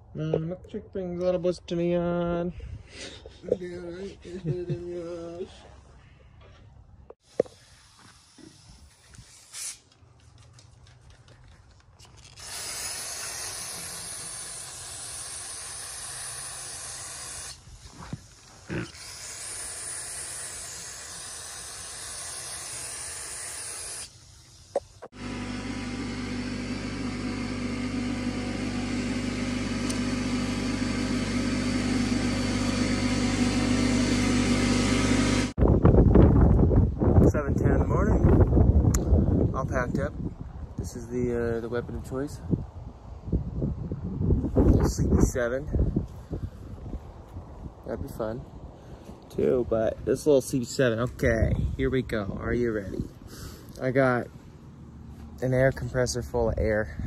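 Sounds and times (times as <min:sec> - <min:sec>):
spraying hiss: 0:07.2 - 0:09.9, 0:12.4 - 0:25.1.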